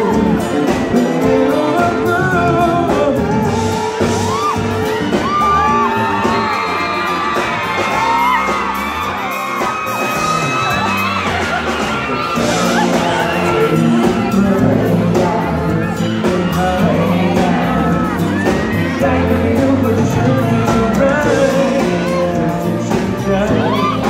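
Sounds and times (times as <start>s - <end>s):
man singing into a microphone: 0.0s - 4.1s, 12.4s - 24.0s
live pop band playing: 0.0s - 24.0s.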